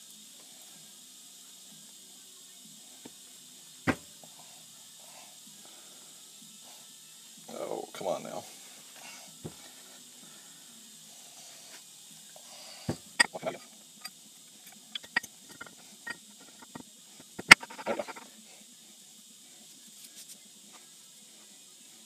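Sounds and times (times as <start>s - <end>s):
metal parts clicking and scraping: 13.2s - 14.1s, 14.7s - 16.8s, 17.4s - 18.2s.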